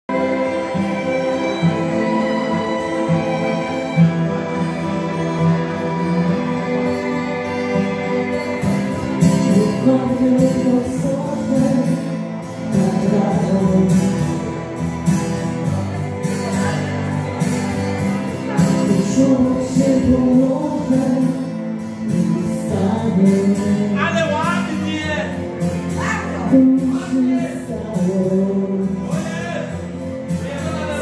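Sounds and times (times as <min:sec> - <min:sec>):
keyboard backing: 0:00.1 - 0:31.0
person singing into a microphone: 0:04.3 - 0:14.7, 0:15.8 - 0:24.9, 0:25.9 - 0:31.0.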